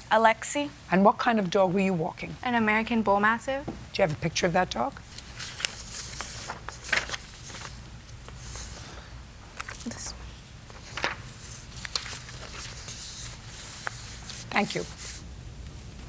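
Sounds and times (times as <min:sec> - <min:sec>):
low room hum: 0:00.0 - 0:16.0
paper rustling: 0:05.0 - 0:15.2.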